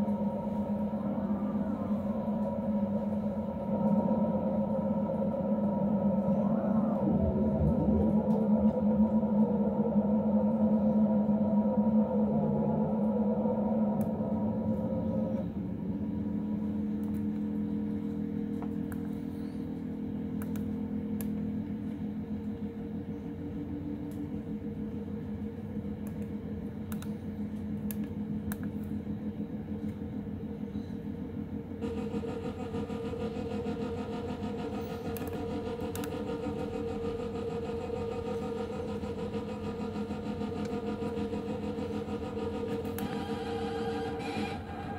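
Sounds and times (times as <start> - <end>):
falling synth sweep: 0.0 - 15.8
synthesizer drone: 0.0 - 44.9.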